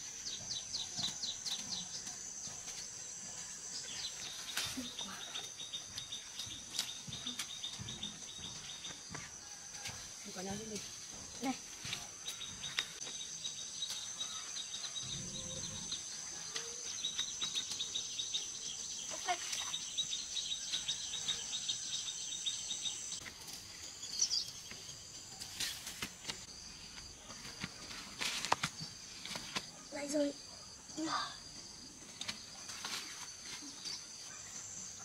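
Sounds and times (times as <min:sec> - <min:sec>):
insect chorus: 0:00.0 - 0:35.0
plants rustling: 0:03.6 - 0:08.4, 0:24.6 - 0:29.8, 0:32.0 - 0:34.5.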